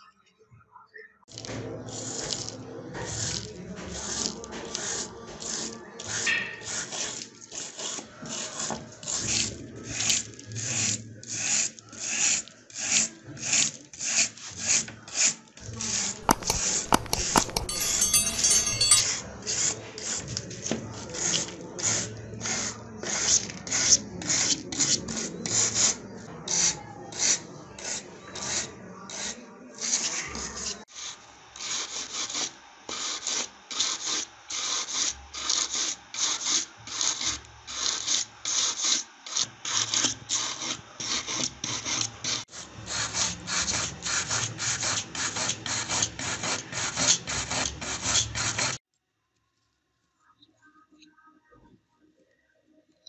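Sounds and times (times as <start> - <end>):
tool scraping paint off metal: 1.9 - 9.5, 15.8 - 19.1.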